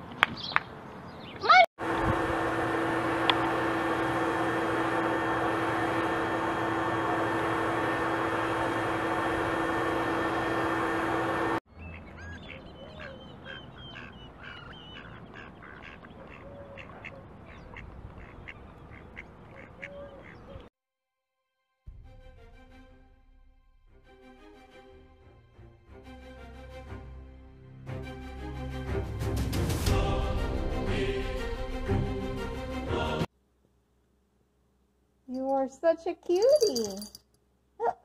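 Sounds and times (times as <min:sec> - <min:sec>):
ducks quacking: 0:11.8 - 0:20.6.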